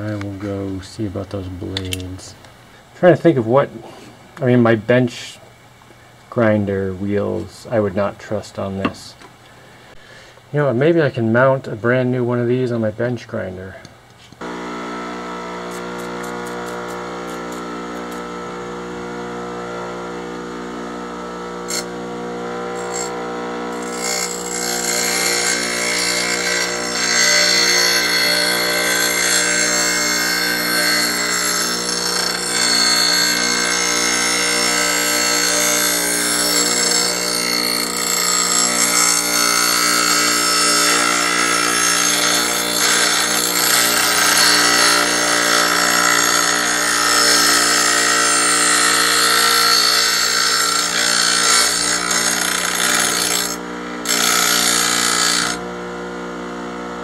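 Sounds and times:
bench grinder motor humming: 0:14.4 - 0:57.0
blade grinding on wheel: 0:21.5 - 0:55.6.

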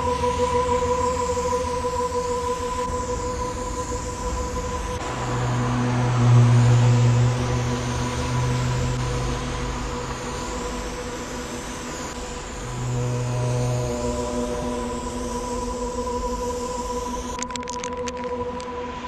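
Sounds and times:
traffic on wet street: 0:05.0 - 0:10.2.

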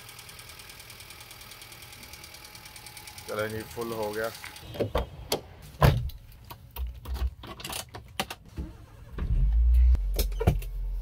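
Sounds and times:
car engine starting and idling: 0:08.2 - 0:11.0.

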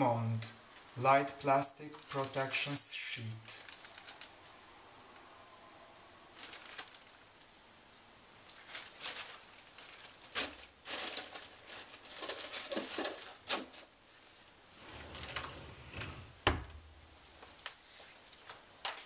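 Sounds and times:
plastic packaging crinkling: 0:01.9 - 0:02.8, 0:03.4 - 0:04.5, 0:06.3 - 0:07.5, 0:08.4 - 0:14.2.

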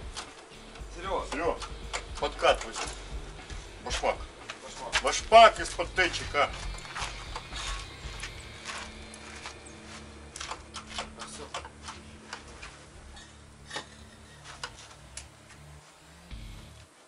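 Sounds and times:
low welding hum: 0:00.0 - 0:17.0
welding arc crackles and pops: 0:00.0 - 0:17.0.

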